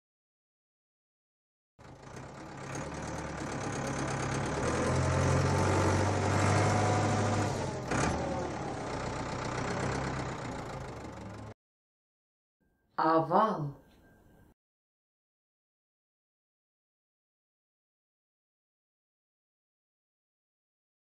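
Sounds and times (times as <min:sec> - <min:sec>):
cartoon tractor engine running: 0:01.8 - 0:11.6.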